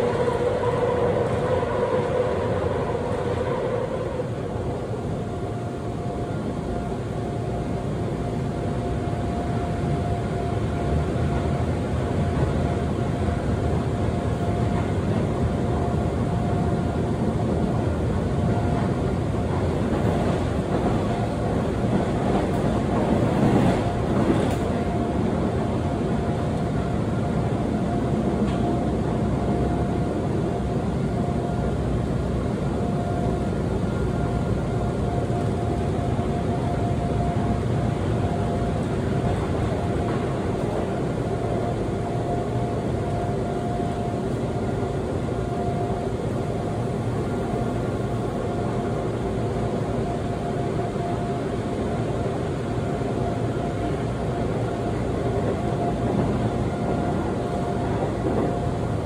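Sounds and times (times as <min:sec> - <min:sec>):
rumble of train wheels on rail: 0:00.0 - 0:59.0.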